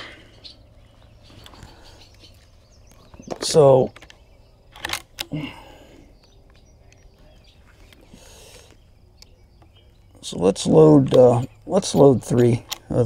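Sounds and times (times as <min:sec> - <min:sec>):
rifle cartridges clicking and rattling: 0:03.2 - 0:05.3.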